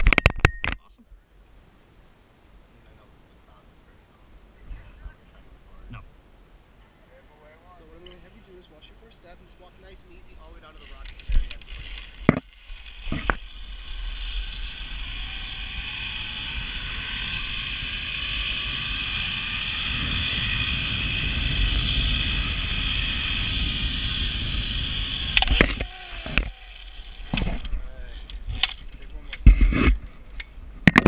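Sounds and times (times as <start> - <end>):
zip-line pulleys whirring: 10.7 - 28.6.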